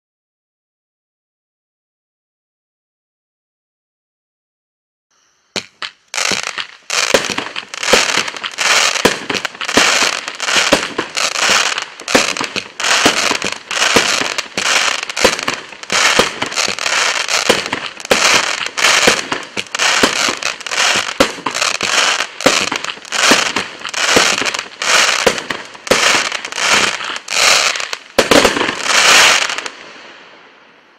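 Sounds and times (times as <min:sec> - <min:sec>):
firework shots: 0:05.6 - 0:30.4
firework crackling: 0:05.6 - 0:30.6.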